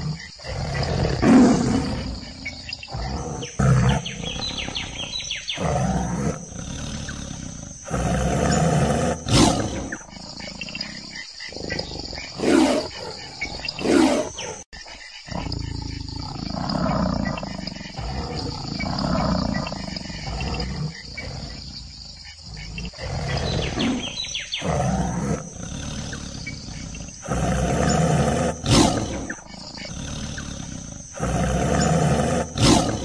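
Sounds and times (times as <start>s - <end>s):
tiger growling and snarling: 0.0s - 33.0s.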